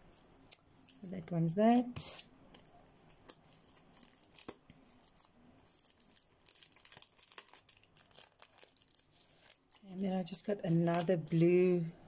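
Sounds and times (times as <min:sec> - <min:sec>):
plastic packaging crinkling: 0:02.6 - 0:11.4.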